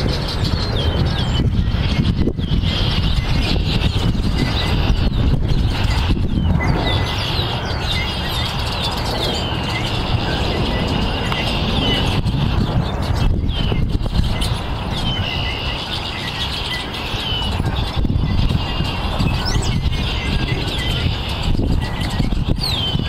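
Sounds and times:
starling whistles and chirps: 0:00.0 - 0:23.0
steady low rumble: 0:00.0 - 0:23.0.

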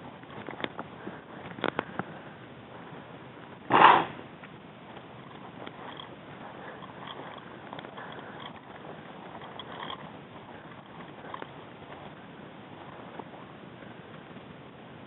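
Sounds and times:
steps through dry grass: 0:04.8 - 0:14.6.

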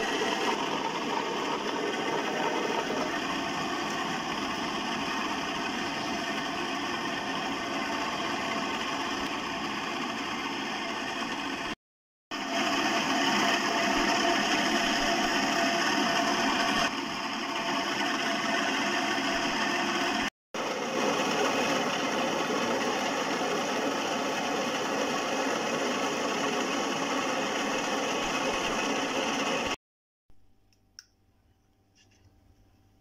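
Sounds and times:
wet grinder humming: 0:00.0 - 0:29.8.

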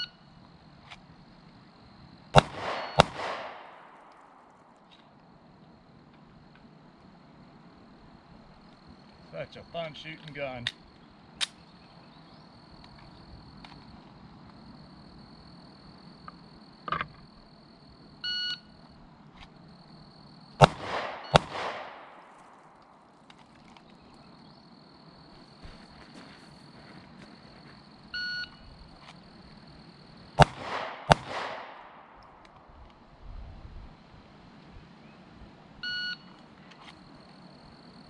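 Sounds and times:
pistol shots with echo: 0:02.3 - 0:04.7, 0:20.6 - 0:22.9, 0:30.4 - 0:32.4.

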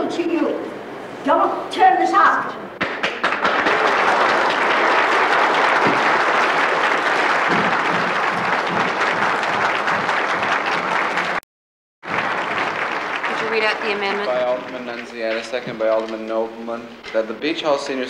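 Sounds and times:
audience applause: 0:02.8 - 0:11.4, 0:12.0 - 0:15.3.

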